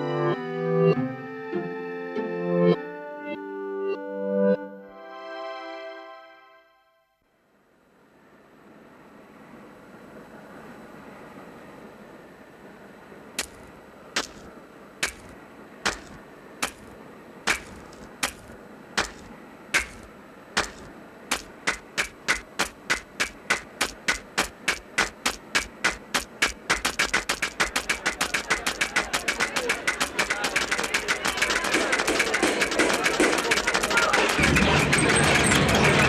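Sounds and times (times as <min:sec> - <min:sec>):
bricks clicking down: 0:13.4 - 0:36.0.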